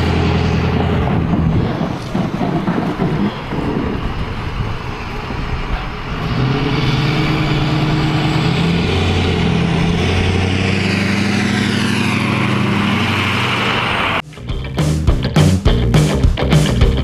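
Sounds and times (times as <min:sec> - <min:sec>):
truck engine and tyre noise: 0:00.0 - 0:15.8.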